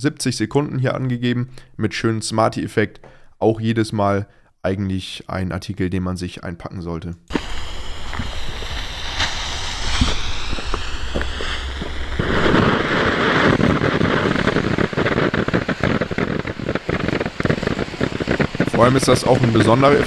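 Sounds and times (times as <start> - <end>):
firework fountain hissing and crackling: 7.3 - 20.0
fuse hissing: 7.3 - 20.0.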